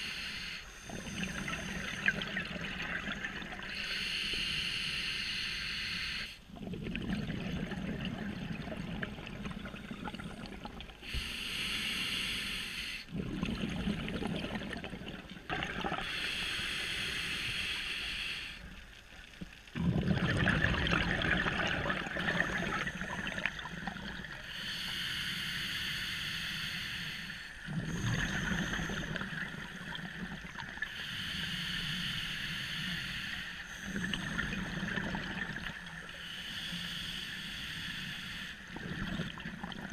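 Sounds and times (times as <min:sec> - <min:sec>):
hissing inhale through regulator: 0:00.0 - 0:06.5, 0:09.7 - 0:13.2, 0:15.8 - 0:19.0, 0:21.8 - 0:39.9
bubbling exhale: 0:00.0 - 0:18.6, 0:19.8 - 0:39.9.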